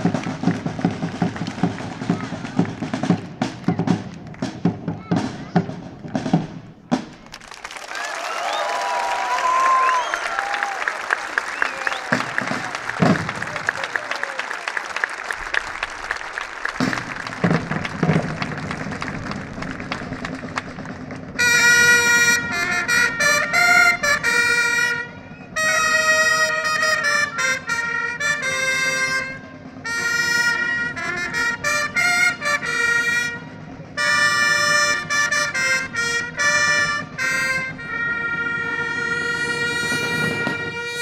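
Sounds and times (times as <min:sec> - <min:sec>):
trumpets playing a fanfare: 0:21.3 - 0:41.0.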